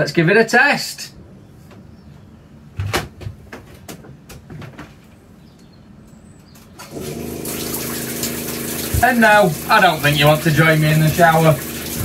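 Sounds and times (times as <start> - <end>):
water pump humming: 6.8 - 12.0
water rushing: 6.9 - 12.0.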